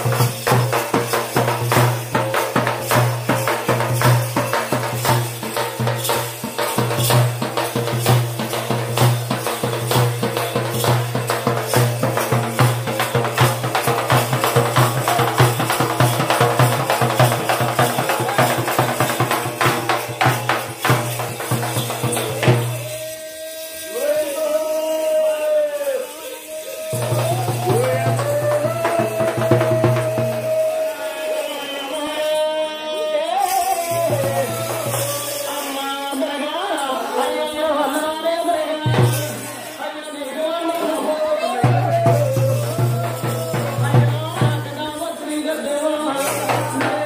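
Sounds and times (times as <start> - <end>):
frame drums beaten fast: 0.0 - 23.7, 26.8 - 31.2, 33.6 - 35.6, 38.6 - 39.8, 40.8 - 47.0.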